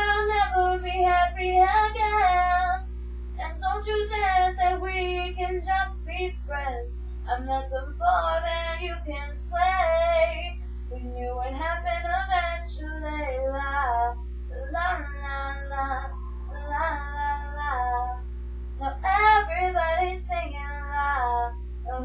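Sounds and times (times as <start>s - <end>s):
woman singing: 0.0s - 2.8s, 3.4s - 18.2s, 18.8s - 22.0s
low electrical hum: 0.0s - 22.0s.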